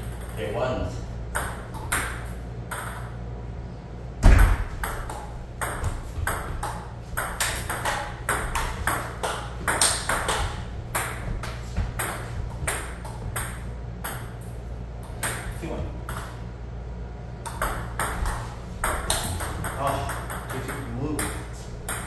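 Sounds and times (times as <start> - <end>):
loud thump: 4.2 - 4.8.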